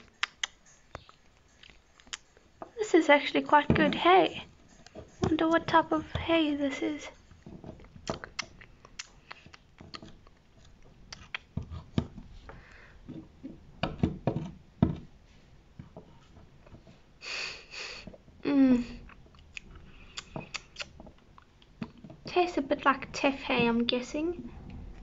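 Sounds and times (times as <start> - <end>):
breathy sniff: 17.2 - 18.2.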